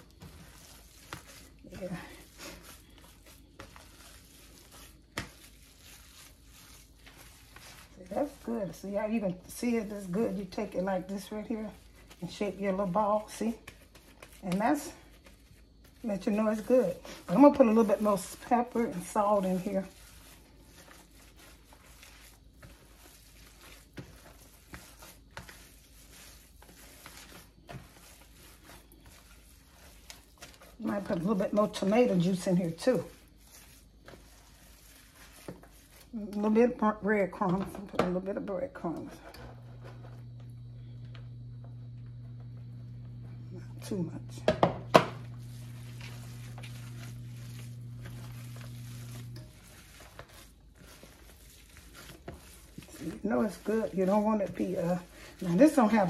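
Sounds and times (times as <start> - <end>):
hands squishing ground meat: 0.0 - 9.2, 10.5 - 36.5, 45.2 - 56.0
steady low hum: 39.4 - 49.7.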